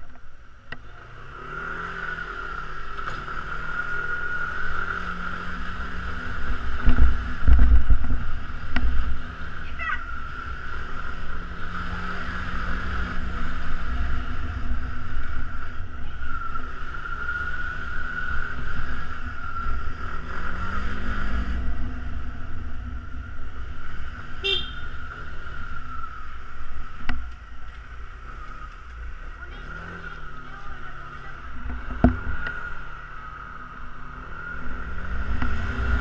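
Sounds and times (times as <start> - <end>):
wind rumble on microphone: 6.7 - 9.4.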